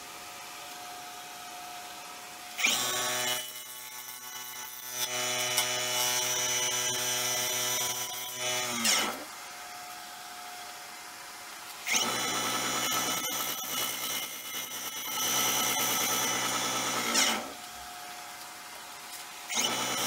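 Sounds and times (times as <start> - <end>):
gouge cutting spinning wood: 2.6 - 9.2.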